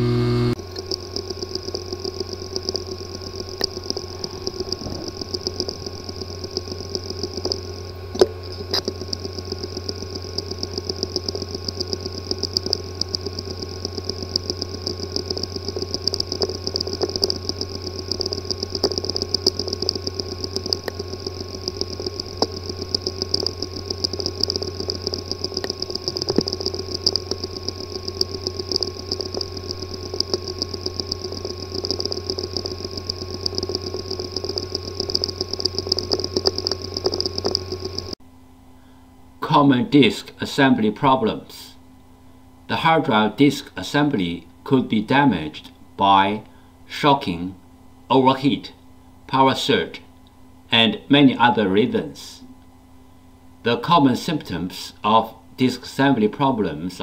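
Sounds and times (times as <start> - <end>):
hard drive sharp clicks: 0.0 - 38.2
hard drive buzzing: 0.0 - 57.0.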